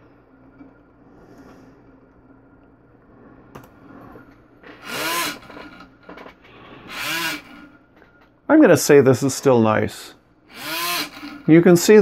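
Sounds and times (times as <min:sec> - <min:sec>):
small electric motor and propeller: 0:04.8 - 0:05.7, 0:06.9 - 0:07.6, 0:10.5 - 0:11.4.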